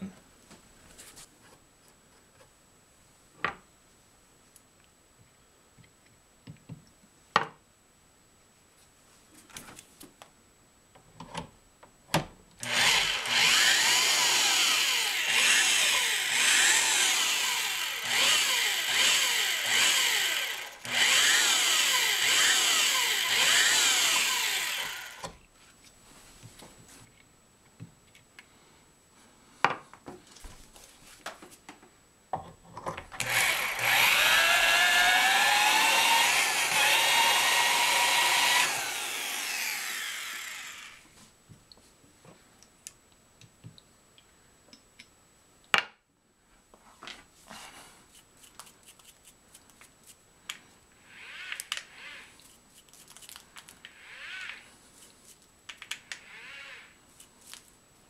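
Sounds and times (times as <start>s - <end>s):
shrill metal cutting whine: 12.7s - 25.2s, 33.2s - 41.0s.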